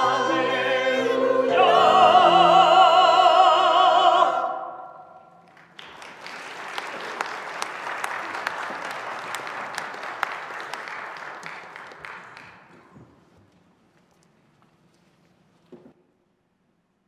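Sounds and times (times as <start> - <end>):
congregation applauding: 5.4 - 13.0.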